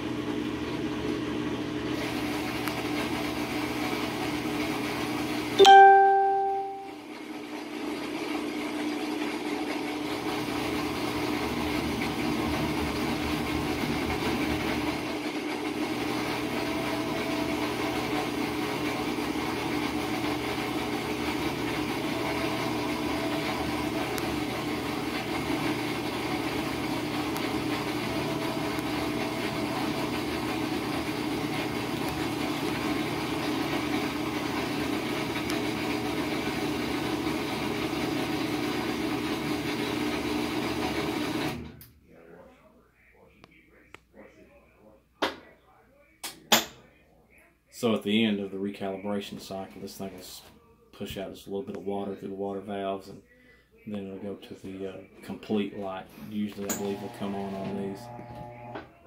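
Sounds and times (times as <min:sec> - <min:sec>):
washing machine mechanical hum: 0:00.0 - 0:42.4, 0:53.8 - 0:59.0.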